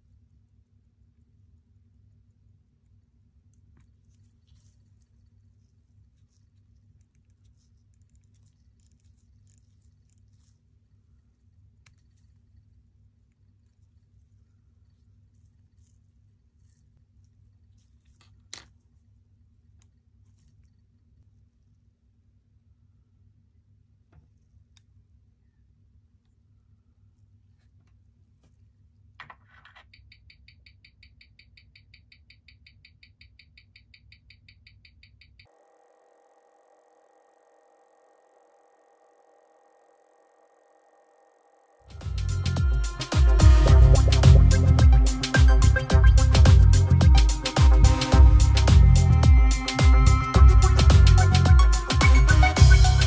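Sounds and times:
watch winding ratchet clicking: 0:06.9 - 0:10.3
watch ticking through speaker: 0:30.0 - 0:35.5, 0:42.0 - 0:53.0
low steady hum: 0:35.5 - 0:53.0.

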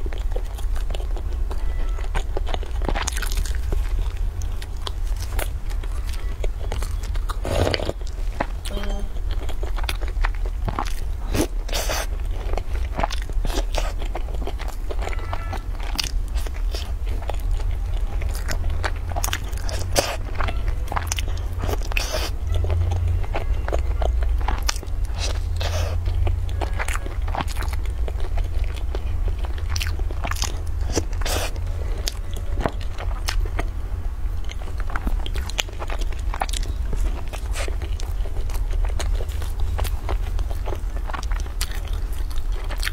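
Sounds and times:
low steady hum: 0:00.0 - 0:42.9
person chewing pastry: 0:00.0 - 0:42.9.

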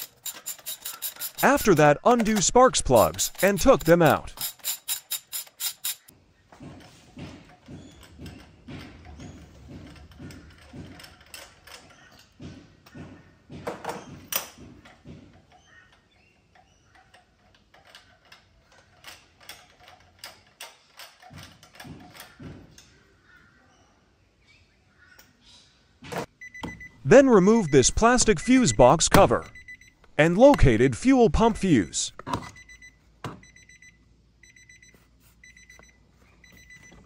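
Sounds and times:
hand ratchet clicking: 0:00.0 - 0:06.1.

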